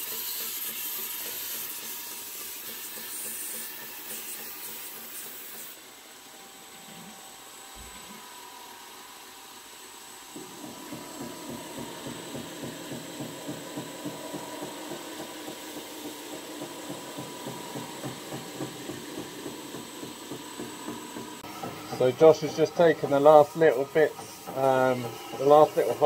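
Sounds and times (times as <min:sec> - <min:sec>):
belt grinder humming: 0:08.0 - 0:26.0
rhythmic pulsing: 0:09.8 - 0:26.0.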